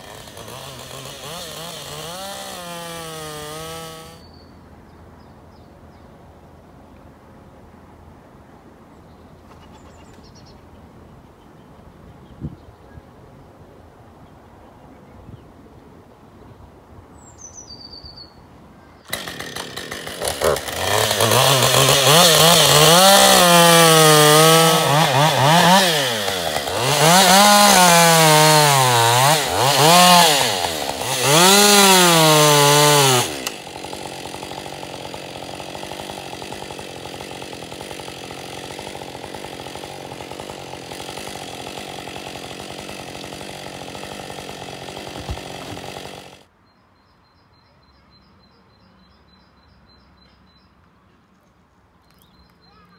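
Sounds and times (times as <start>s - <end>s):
chainsaw cutting wood: 0.0s - 4.3s, 19.1s - 46.5s.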